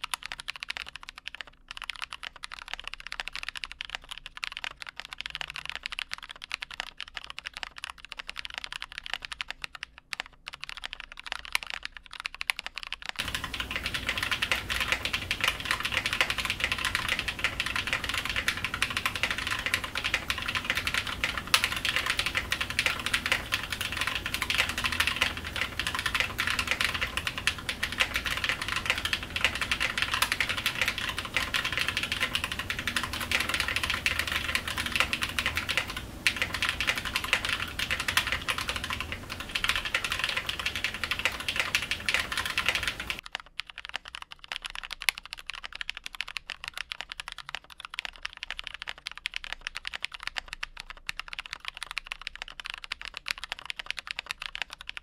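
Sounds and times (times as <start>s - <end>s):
mechanical keyboard typing: 0.0s - 55.0s
background hiss: 13.2s - 43.2s.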